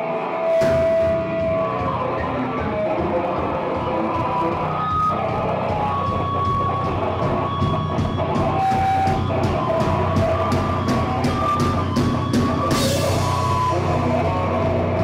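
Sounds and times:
rock band playing live: 0.0s - 15.0s
cymbal crash: 0.5s - 1.6s.

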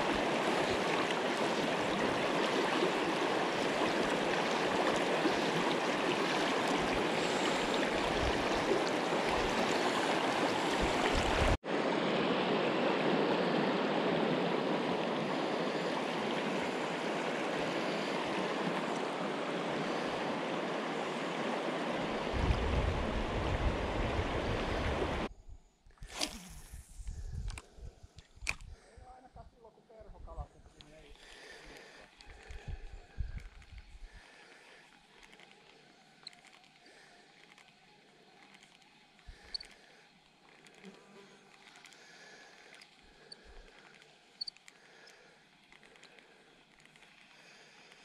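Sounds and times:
water rushing over stones: 0.0s - 12.3s.

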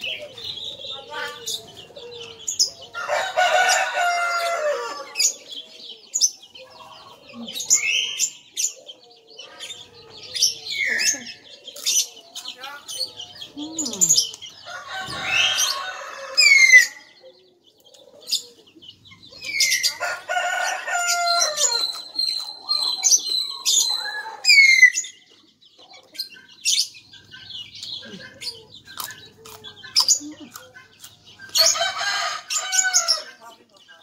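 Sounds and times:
small birds chirping: 0.0s - 34.0s
rooster crowing: 2.9s - 5.3s, 14.6s - 17.1s, 19.8s - 21.9s, 31.6s - 33.4s
chewing clicks and crunches: 21.8s - 23.0s, 27.8s - 31.8s.

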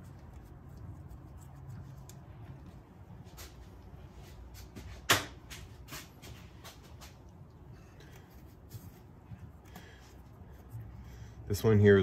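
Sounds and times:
faint clicks and handling noise: 0.0s - 11.2s
low steady hum: 0.0s - 12.0s.

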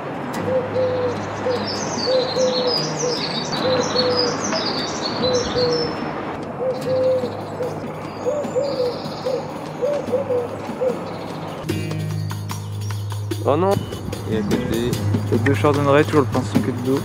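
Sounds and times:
songbird twittering: 0.3s - 17.0s
dove cooing: 0.4s - 11.6s.

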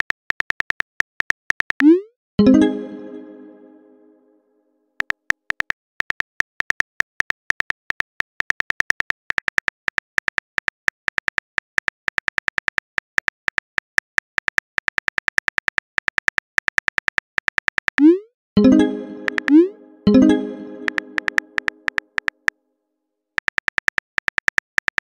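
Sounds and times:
keyboard typing clicks: 17.4s - 22.4s.

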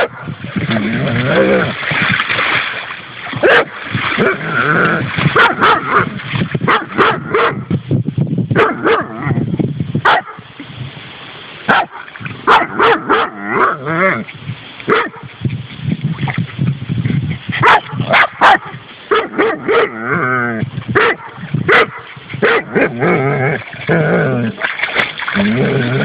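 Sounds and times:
dog splashing in water: 0.0s - 7.2s, 20.8s - 26.0s.

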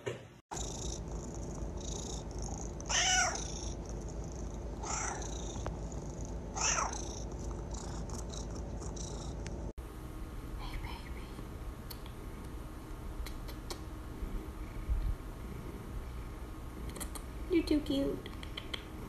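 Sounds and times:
cat purring: 0.5s - 9.7s, 13.2s - 17.5s
cat meowing: 2.9s - 3.6s, 6.6s - 7.1s.

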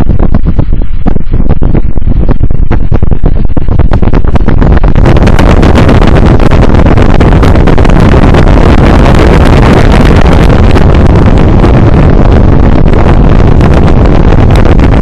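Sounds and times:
fan wind buffeting microphone: 0.0s - 15.0s.

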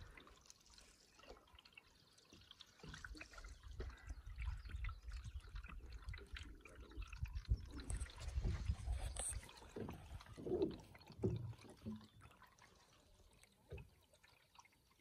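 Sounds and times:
water trickling and dripping: 0.0s - 15.0s
waves lapping canoe hull: 5.6s - 14.0s
wind buffeting microphone: 7.0s - 10.6s.

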